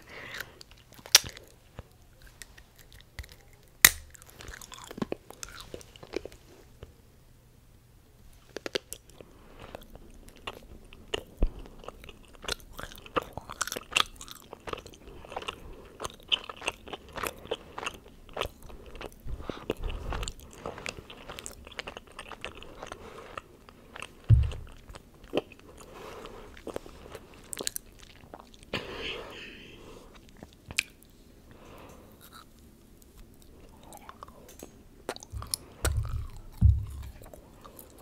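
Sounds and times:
chewing chocolate: 0.0s - 6.4s, 8.4s - 28.7s, 30.0s - 31.1s, 31.8s - 38.0s
loud low thump: 24.3s - 24.8s, 35.4s - 37.2s.

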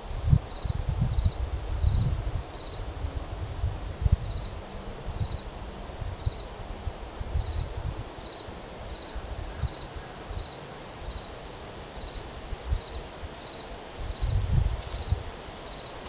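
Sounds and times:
cricket chirping: 0.5s - 2.9s, 4.2s - 4.6s, 5.2s - 5.5s, 6.2s - 6.5s, 7.4s - 16.0s.

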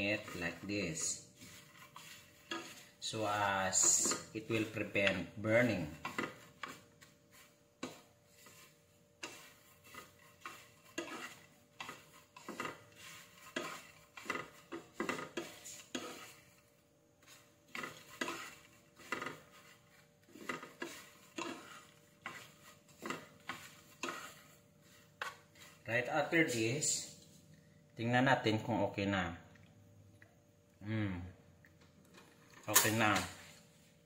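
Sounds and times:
wooden utensils scraping frying pan: 0.0s - 27.0s.

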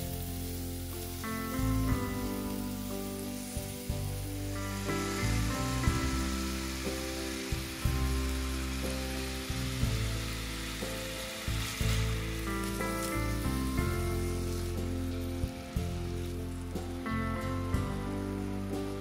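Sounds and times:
background music of held notes: 0.0s - 19.0s
food sizzling in a pan: 0.0s - 19.0s.

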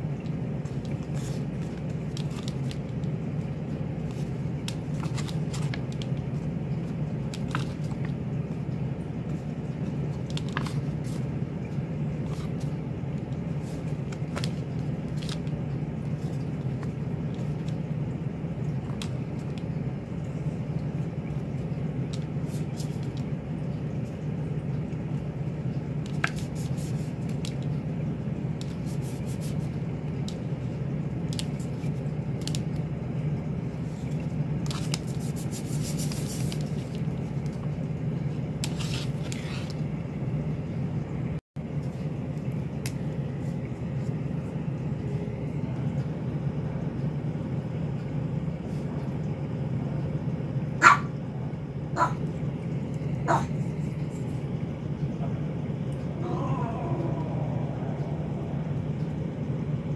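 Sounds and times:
steady low hum: 0.0s - 59.9s
paper rustling against plastic: 0.6s - 3.3s, 4.0s - 8.6s, 9.7s - 17.8s, 28.6s - 29.8s, 34.0s - 37.6s, 38.6s - 39.8s.

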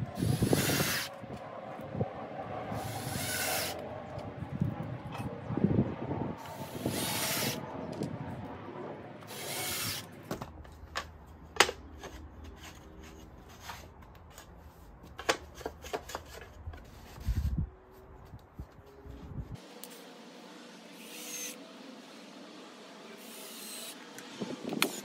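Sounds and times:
cordless drill driving screws: 6.6s - 7.6s, 9.3s - 10.1s.

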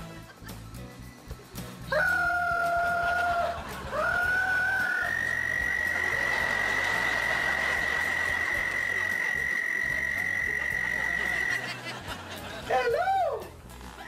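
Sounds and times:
toad calling: 3.9s - 11.7s.

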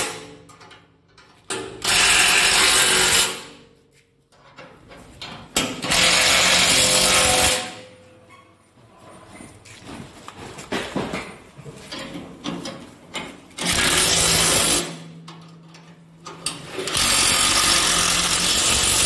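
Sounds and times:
power tool running: 5.8s - 7.7s, 13.6s - 15.0s, 16.8s - 19.0s
metal knocks and clatter: 9.9s - 13.8s.

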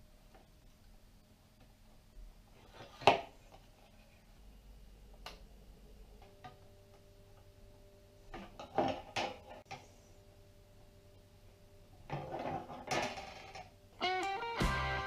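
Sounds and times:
guitar music: 14.0s - 15.0s.

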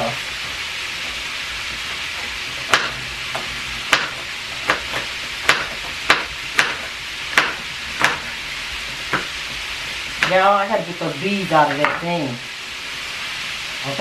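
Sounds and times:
steady hiss: 0.0s - 14.0s
knife chopping vegetables: 2.6s - 8.4s.

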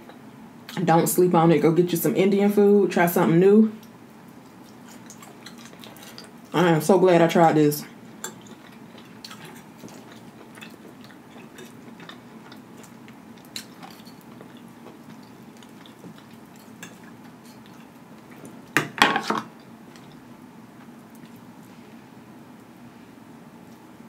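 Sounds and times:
soft chewing: 3.8s - 6.6s, 7.9s - 18.8s, 19.5s - 22.0s.

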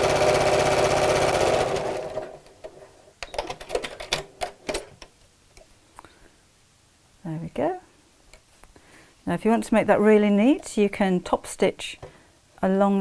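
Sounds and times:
sewing machine stitching: 0.0s - 2.4s.

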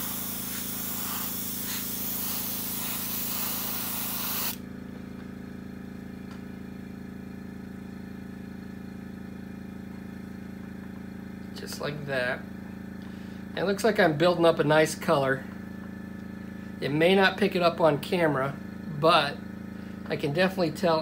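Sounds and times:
airbrush spraying hiss: 0.0s - 4.6s.

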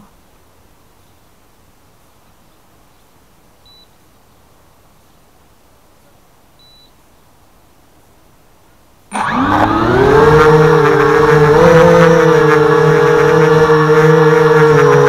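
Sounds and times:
short high beep: 3.7s - 3.9s, 6.6s - 6.9s
drone motors whining: 9.1s - 15.0s.

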